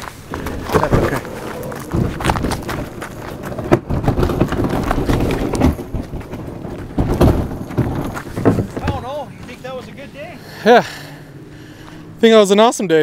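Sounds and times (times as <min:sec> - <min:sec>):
kayak hull and gear rattling: 0:00.0 - 0:10.3
gravel crunching: 0:00.0 - 0:13.0.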